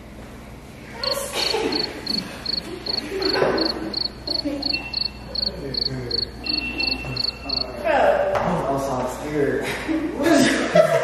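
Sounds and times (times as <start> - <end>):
cricket chirping: 1.0 - 7.8
thin steady high whistle: 3.6 - 7.8.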